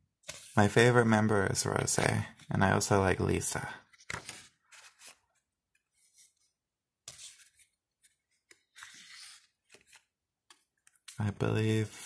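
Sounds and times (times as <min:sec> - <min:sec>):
pages turning: 0:00.2 - 0:00.6, 0:03.9 - 0:11.3.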